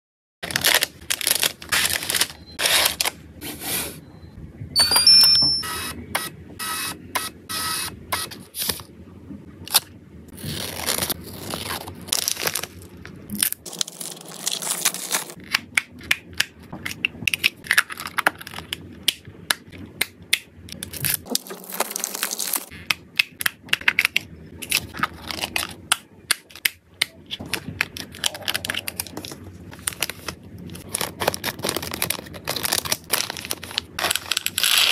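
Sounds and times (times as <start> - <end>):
packaging crinkling: 0.4 - 3.2, 10.4 - 15.4, 20.8 - 22.8, 24.6 - 26.6, 27.3 - 34.9.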